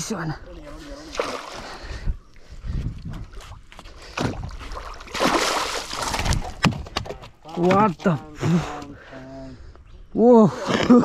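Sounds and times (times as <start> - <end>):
fish thrashing and splashing: 1.0 - 1.8, 4.1 - 7.2.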